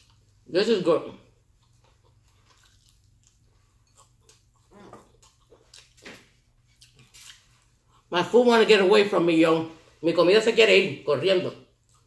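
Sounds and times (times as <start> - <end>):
faint chewing: 0.0 - 0.5, 1.2 - 8.1, 11.7 - 12.0.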